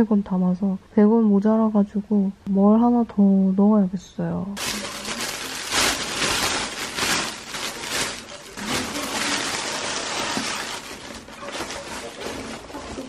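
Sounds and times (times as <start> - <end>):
plastic bag rustling and crinkling: 4.6 - 13.0.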